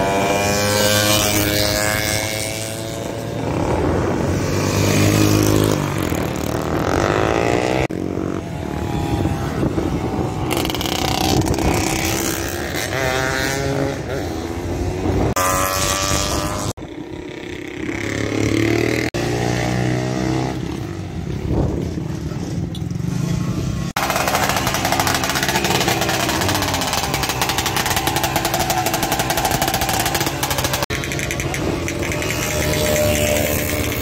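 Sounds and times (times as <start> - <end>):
motorcycle engines revving: 0.0 - 34.0.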